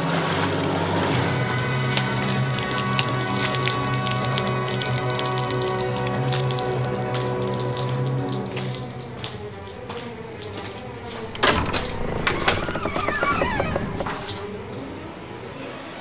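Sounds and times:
footsteps on wet concrete: 1.9s - 11.4s
gate latch clack: 11.2s - 14.4s
gate squeaking: 11.2s - 14.5s
wooden gate knocks: 11.2s - 14.5s.

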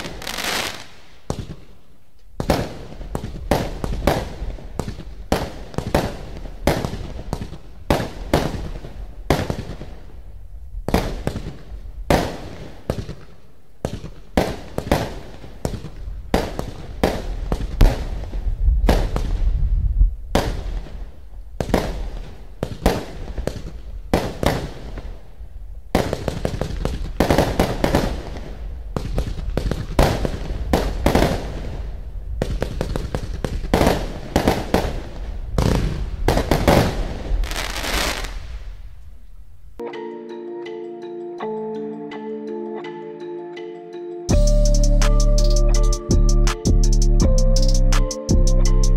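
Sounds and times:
fireworks popping and crackling: 0.0s - 1.8s, 2.4s - 10.1s, 10.8s - 19.6s, 20.3s - 25.3s, 25.9s - 38.8s.

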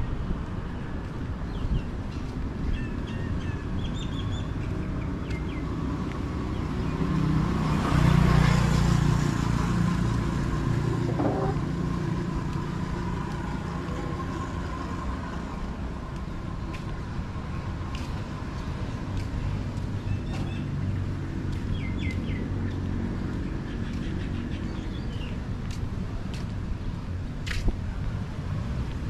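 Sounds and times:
traffic rumble: 0.0s - 29.0s.

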